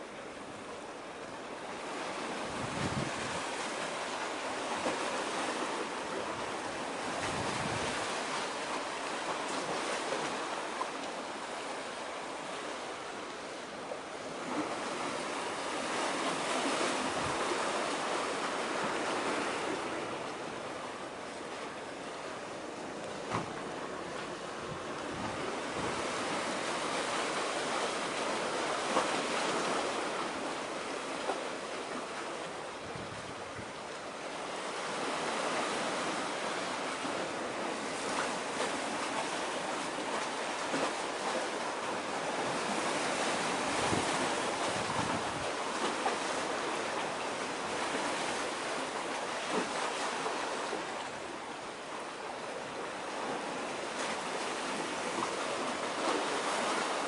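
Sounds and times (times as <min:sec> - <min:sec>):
sea surf rushing: 0:00.0 - 0:57.0
wind: 0:00.0 - 0:57.0.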